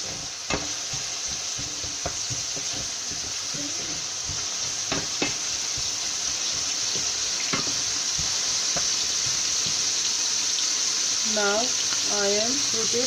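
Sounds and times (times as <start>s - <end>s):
wooden spatula knocking pan: 0.0s - 10.0s
onions sizzling in hot oil: 0.0s - 13.0s.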